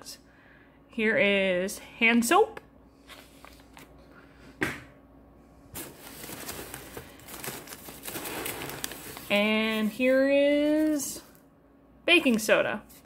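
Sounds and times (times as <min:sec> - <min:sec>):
hands rummaging through packing: 0:05.8 - 0:11.3
crackling rustle: 0:06.0 - 0:10.0.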